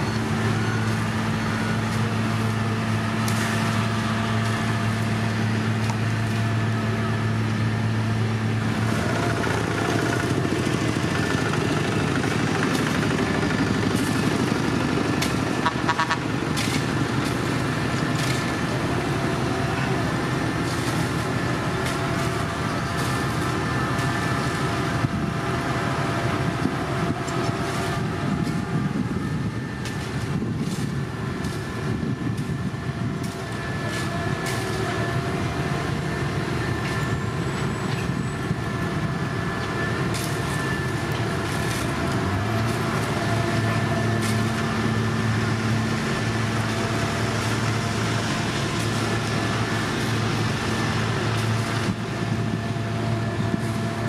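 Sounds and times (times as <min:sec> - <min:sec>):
low engine hum: 0:00.0 - 0:54.0
paving machinery running: 0:00.0 - 0:54.0.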